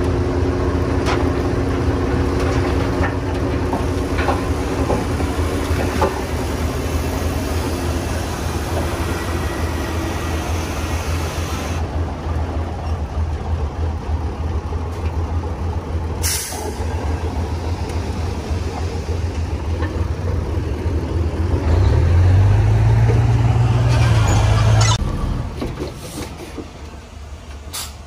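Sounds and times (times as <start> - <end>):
heavy diesel engine running: 0.0 - 28.0
short sharp air hiss: 16.2 - 16.8, 27.7 - 28.0.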